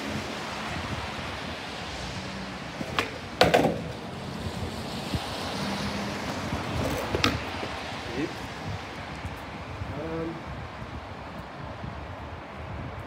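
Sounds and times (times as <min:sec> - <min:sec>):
skateboard wheels rolling on paving: 0:00.0 - 0:13.0
skateboard landing slap: 0:02.8 - 0:04.0, 0:06.8 - 0:07.5
skateboard tail clack: 0:02.8 - 0:04.1, 0:06.8 - 0:07.7.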